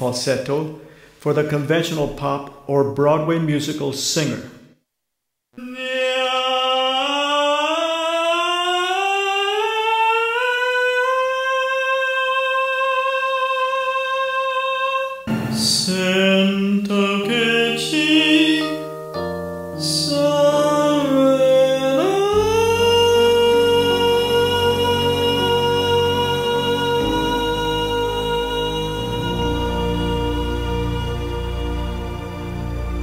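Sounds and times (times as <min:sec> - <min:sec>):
person singing vowel sliding up: 0:05.6 - 0:18.8
keyboard accompaniment: 0:15.2 - 0:33.0
person singing phrase: 0:19.8 - 0:31.2.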